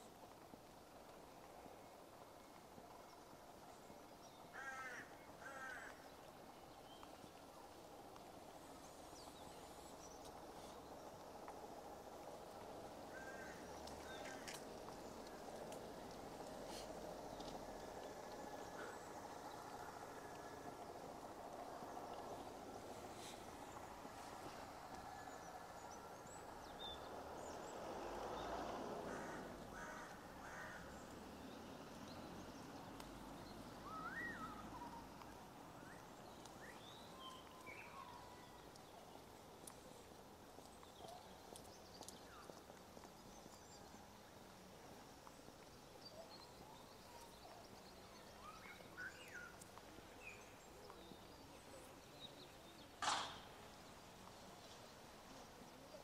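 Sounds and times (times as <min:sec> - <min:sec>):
steady low hiss: 0:00.0 - 0:56.0
sharp knock: 0:53.0 - 0:53.4.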